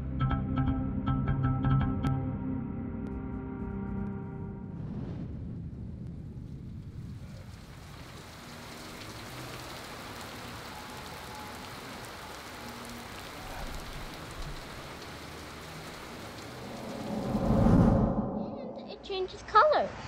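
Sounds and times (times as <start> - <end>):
steady rain: 4.8 - 17.8
raindrops ticking on wood: 7.4 - 17.0.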